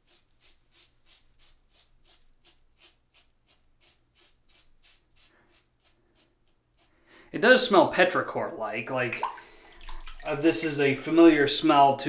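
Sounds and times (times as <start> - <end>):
razor scraping stubble: 0.0 - 7.8.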